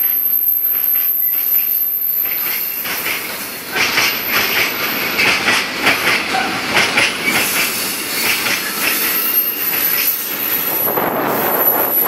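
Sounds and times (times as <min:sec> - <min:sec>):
rumble of train wheels on rail: 0:00.0 - 0:12.0
wheels clattering over rail joints: 0:02.1 - 0:10.2.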